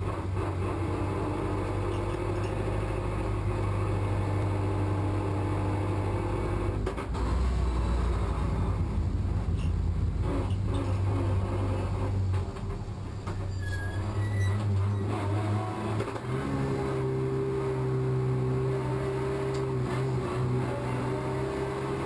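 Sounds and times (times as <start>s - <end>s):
race car engine idling: 7.1s - 13.6s.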